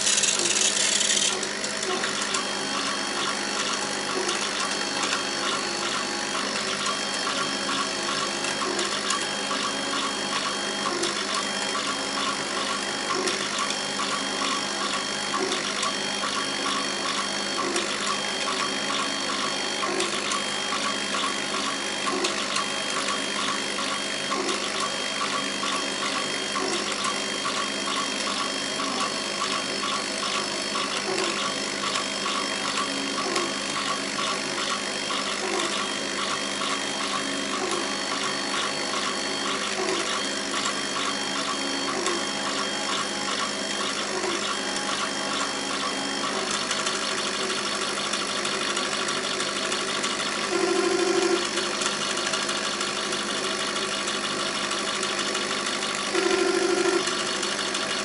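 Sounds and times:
laser cutter pump and fans humming: 0.0 - 58.0
motors whining: 0.0 - 58.0.

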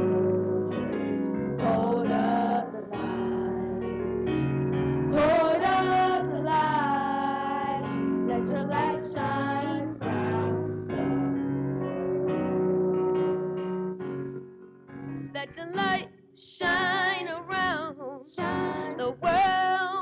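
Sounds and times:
keyboard accompaniment: 0.0 - 19.8
children's choir singing: 1.6 - 4.4, 5.1 - 12.6, 18.3 - 19.6.

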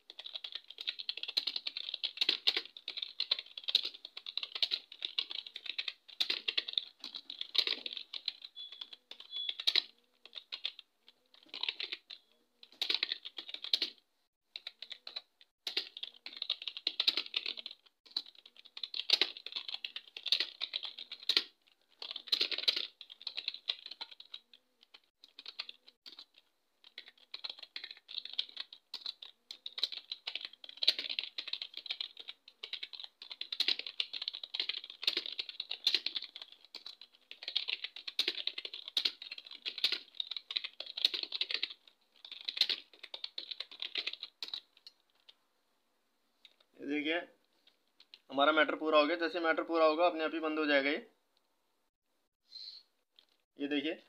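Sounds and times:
rapid keyboard typing: 0.0 - 45.4, 47.7 - 48.3.

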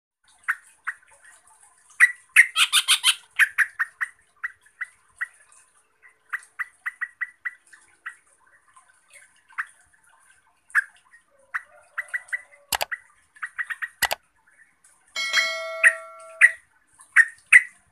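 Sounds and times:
bird chip notes: 15.2 - 16.6.

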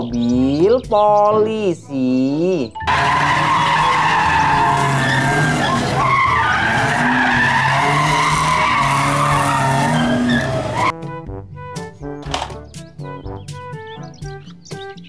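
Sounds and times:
tyres squealing: 2.8 - 10.9
car engine revving: 2.9 - 10.9.

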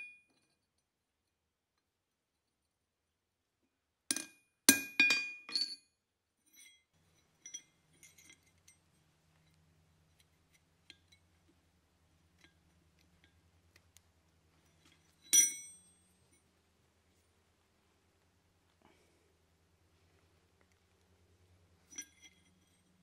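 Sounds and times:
carabiner clinking on anvil: 6.5 - 8.8, 15.1 - 16.1, 21.9 - 22.8.

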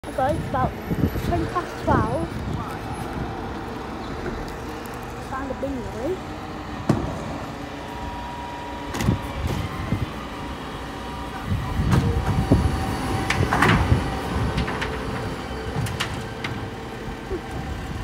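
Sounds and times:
truck engine running: 0.0 - 18.0
bin lift knocks and clanks: 13.2 - 16.7.

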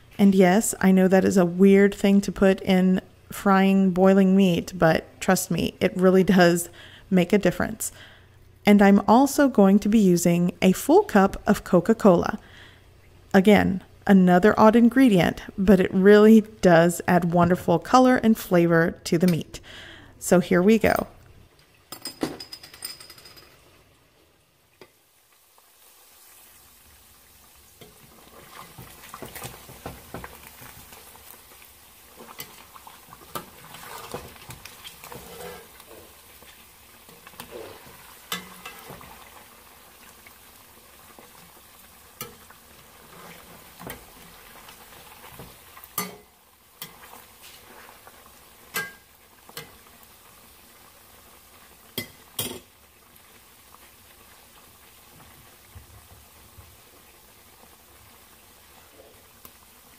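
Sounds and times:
pork sizzling in fat: 23.3 - 59.9
metal spoon scraping a pot: 33.3 - 36.1.

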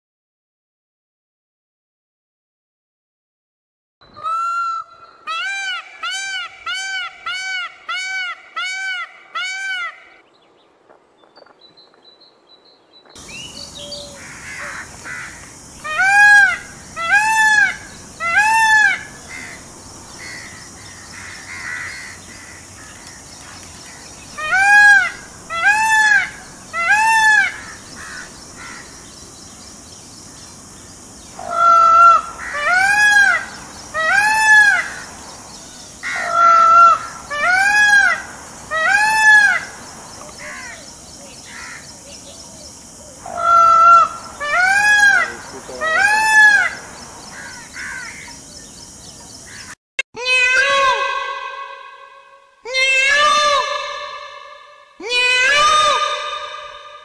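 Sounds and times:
peacock honking calls: 13.8 - 29.1, 31.3 - 35.2, 36.0 - 40.9, 43.2 - 48.3, 49.5 - 57.0.

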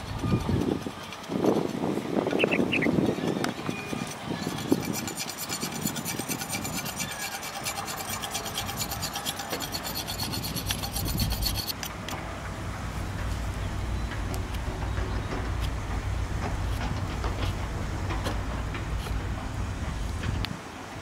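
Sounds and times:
knife scraping plant stalk: 0.0 - 12.0.

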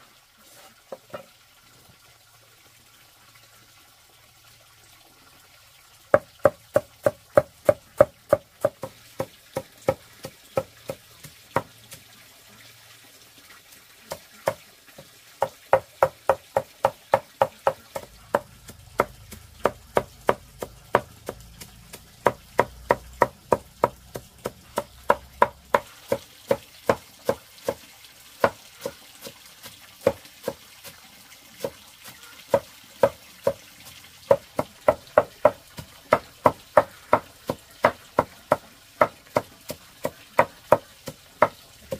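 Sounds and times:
knife chopping on cutting board: 15.4 - 27.8.

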